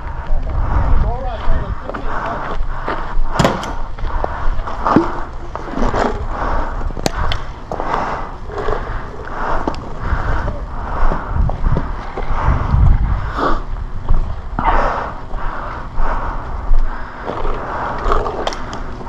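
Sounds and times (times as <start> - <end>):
low rumble: 0.0 - 19.0.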